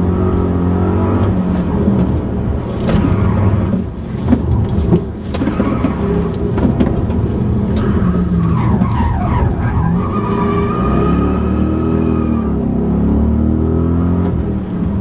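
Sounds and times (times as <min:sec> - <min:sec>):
car engine pulling under load: 0:00.0 - 0:15.0
tyres squealing: 0:07.6 - 0:12.5.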